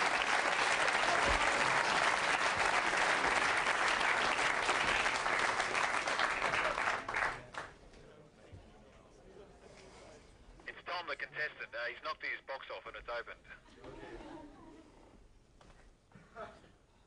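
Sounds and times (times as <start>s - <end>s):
people applauding: 0.0s - 7.8s.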